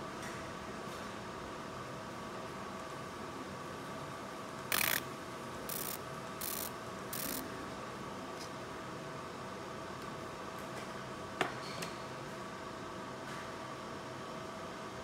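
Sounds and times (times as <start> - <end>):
laser hissing bursts: 4.7 - 5.0, 5.7 - 7.4
machine humming: 4.7 - 7.6.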